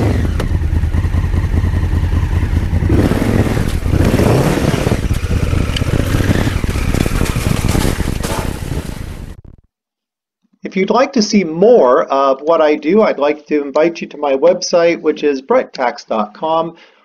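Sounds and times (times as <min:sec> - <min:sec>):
motorcycle engine revving: 0:00.0 - 0:09.7.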